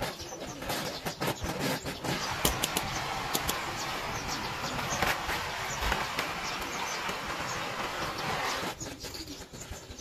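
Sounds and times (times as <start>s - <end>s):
gas torch flame hissing: 1.4s - 9.0s.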